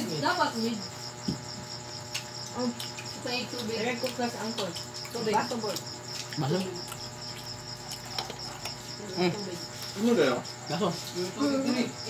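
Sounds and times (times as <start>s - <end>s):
crickets chirping: 0.0s - 12.0s
people talking: 2.6s - 5.8s, 9.0s - 12.0s.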